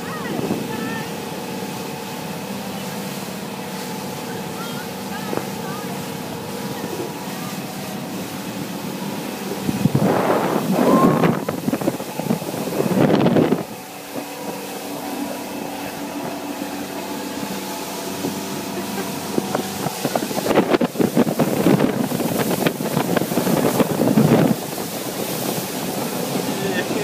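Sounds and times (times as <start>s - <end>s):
motorboat engine humming: 0.0s - 27.0s
wind buffeting microphone: 6.7s - 27.0s.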